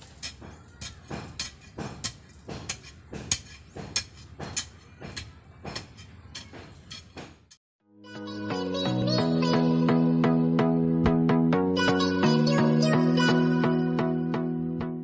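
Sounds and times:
digging tool striking gravelly soil: 0:00.0 - 0:07.6.

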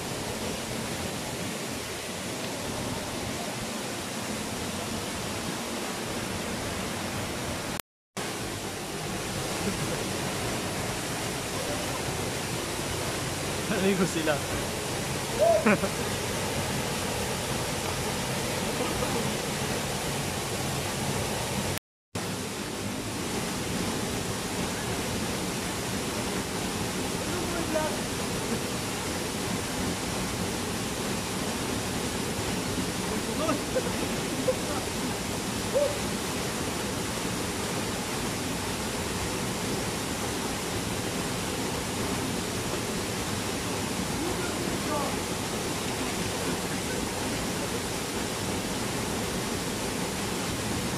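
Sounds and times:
waterfall rushing: 0:00.0 - 0:50.9.

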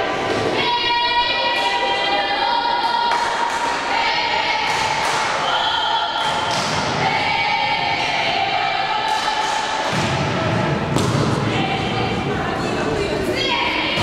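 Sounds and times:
volleyball thuds: 0:06.2 - 0:07.2, 0:09.8 - 0:11.8.

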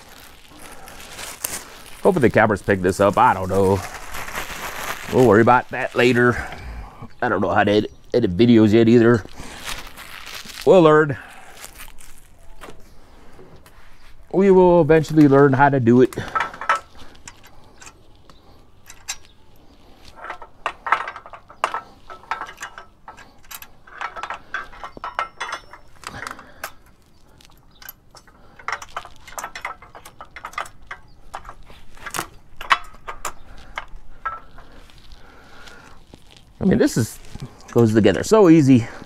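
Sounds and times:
metal parts clinking and rattling: 0:00.0 - 0:06.5, 0:14.9 - 0:39.0.

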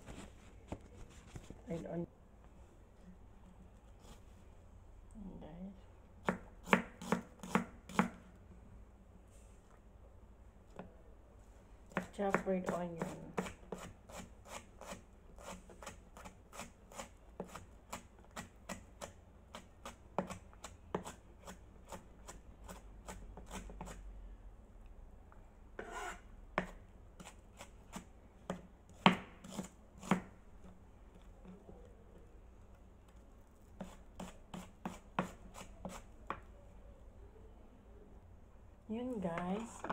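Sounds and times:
knife chopping on plastic board: 0:06.2 - 0:08.2, 0:26.6 - 0:30.3, 0:33.8 - 0:36.4.

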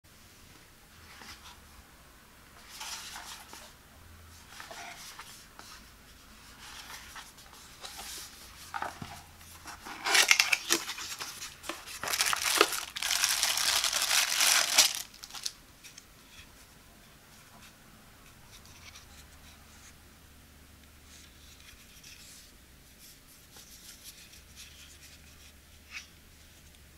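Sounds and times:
hands handling cardboard box: 0:04.4 - 0:15.5
packaging rustling and crinkling: 0:06.7 - 0:15.6
handling plastic lid: 0:07.8 - 0:15.5.

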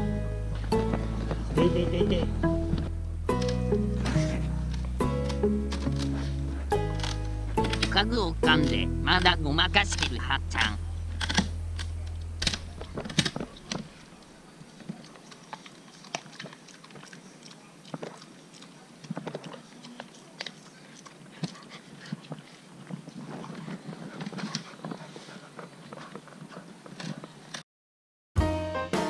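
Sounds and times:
puppy chewing on wooden chair: 0:14.7 - 0:27.5
claws clicking on wood: 0:14.8 - 0:27.6.

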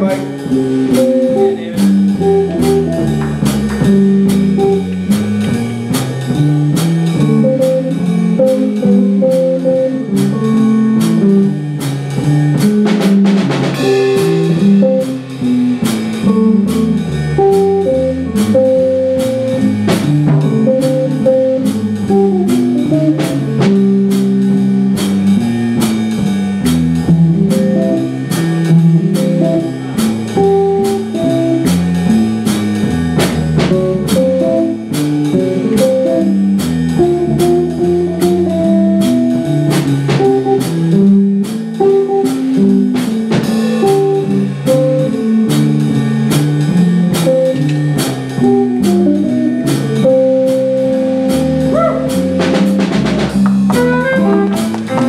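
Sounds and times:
bass: 0:00.0 - 0:55.0
drum kit with cymbal strokes: 0:00.0 - 0:55.0
electric guitar soloing: 0:51.6 - 0:52.6, 0:53.7 - 0:55.0.

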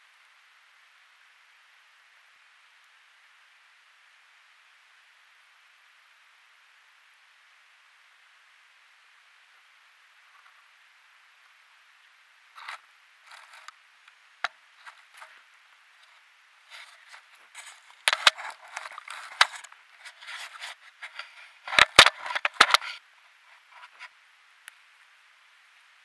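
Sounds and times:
small clicks: 0:12.6 - 0:15.3, 0:16.7 - 0:23.0
fur scraping against microphone: 0:16.0 - 0:24.1.

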